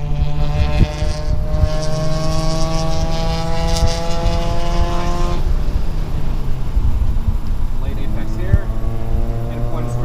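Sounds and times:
car engine accelerating: 0:00.0 - 0:10.0
tyre and road noise: 0:00.0 - 0:10.0.

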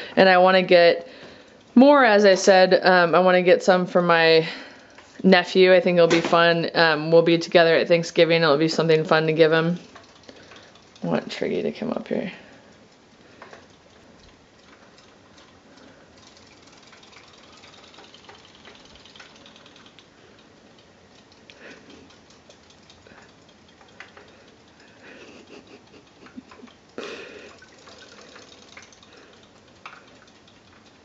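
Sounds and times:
toy fish motors ticking: 0:08.2 - 0:11.8, 0:12.7 - 0:31.0.

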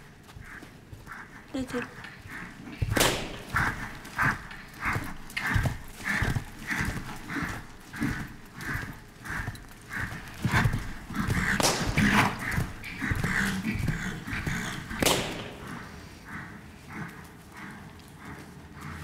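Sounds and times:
horse hoofbeats on sand: 0:00.0 - 0:19.0
sharp thumps: 0:11.2 - 0:13.3.

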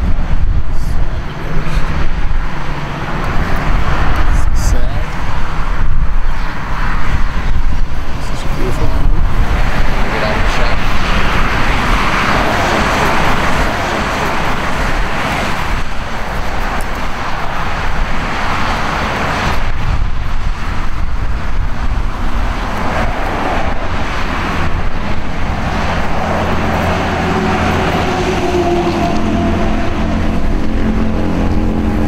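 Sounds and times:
engine hum: 0:00.0 - 0:32.0
road and wind noise: 0:00.0 - 0:32.0
vehicle rumble: 0:00.0 - 0:32.0.

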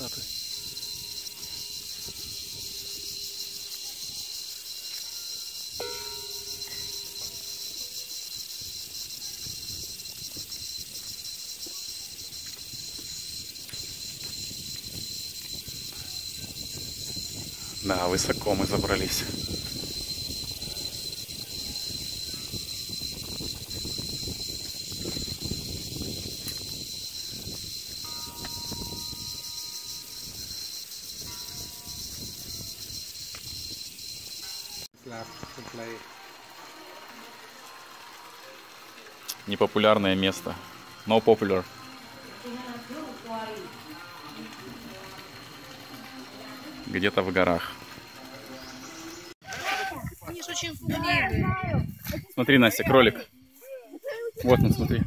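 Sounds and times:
insects trilling: 0:00.0 - 0:55.0
wind rumble on microphone: 0:00.8 - 0:03.2, 0:12.0 - 0:34.3, 0:49.8 - 0:52.4, 0:54.4 - 0:55.0.

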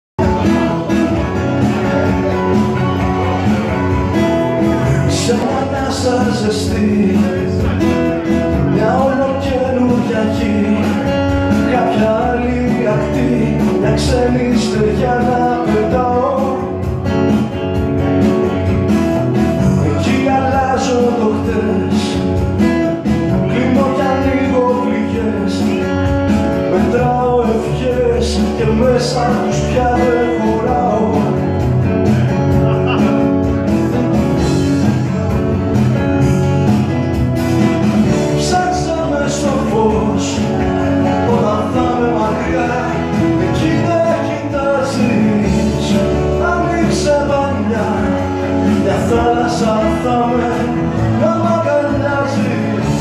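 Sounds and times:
acoustic guitar playing: 0:00.2 - 0:53.0
man singing: 0:00.2 - 0:53.0.

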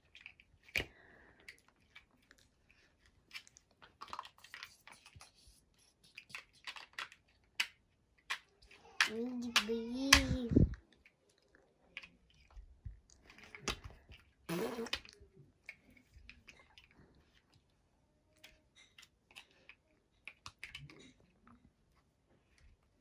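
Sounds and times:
plastic toy blocks clicking: 0:06.2 - 0:10.4, 0:18.4 - 0:21.2.

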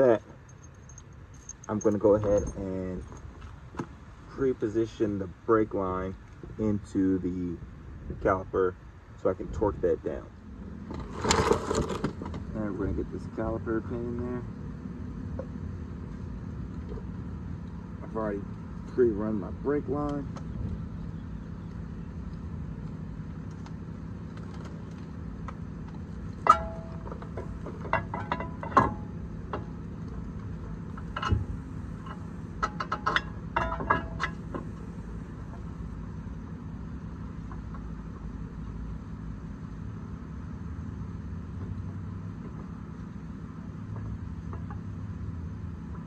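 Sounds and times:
metallic clinks and clanks: 0:00.4 - 0:03.3, 0:26.4 - 0:29.8, 0:32.0 - 0:34.7
car engine idling: 0:11.9 - 0:46.0.

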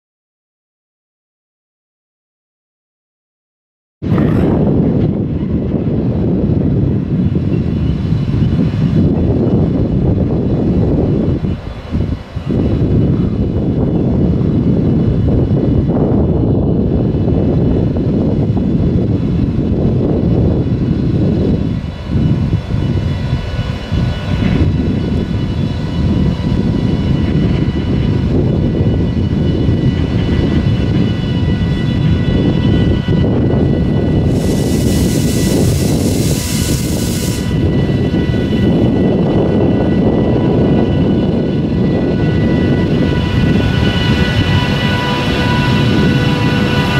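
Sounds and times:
freight train low rumble: 0:04.0 - 0:46.9
locomotive hiss: 0:34.2 - 0:37.7.

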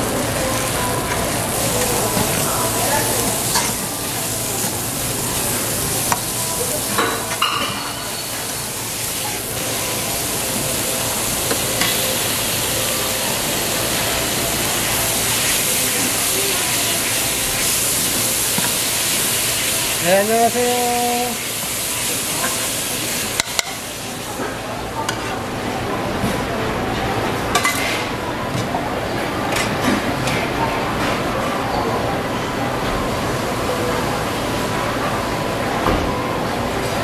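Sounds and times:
vegetables sizzling in a wok: 0:00.0 - 0:26.1.

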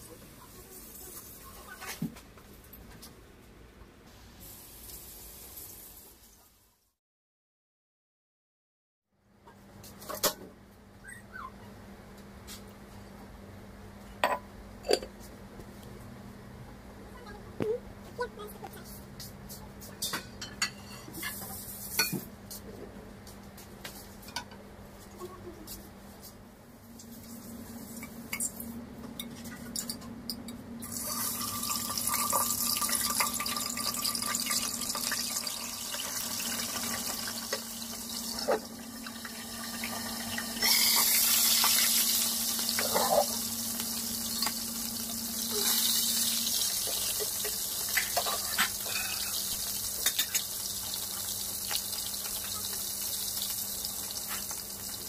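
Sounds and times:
fish sizzling in hot oil: 0:04.4 - 0:06.2, 0:30.8 - 0:55.0.

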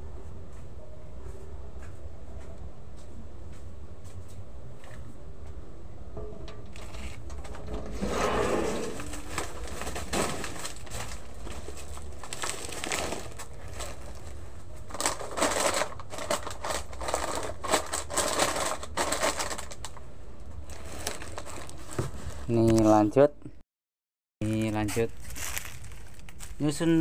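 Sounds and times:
plastic packets crinkling: 0:08.9 - 0:22.7, 0:24.4 - 0:27.0.

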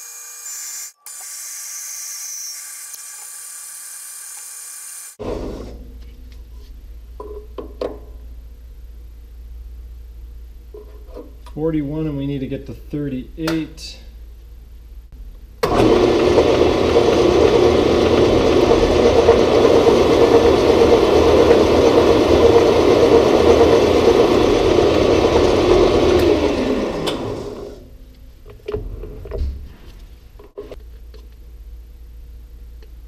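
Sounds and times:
lathe running: 0:15.6 - 0:27.8.

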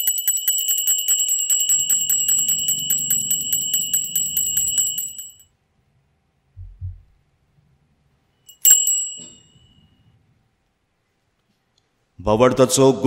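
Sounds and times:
altar bells ringing: 0:00.0 - 0:05.4, 0:08.5 - 0:09.8.

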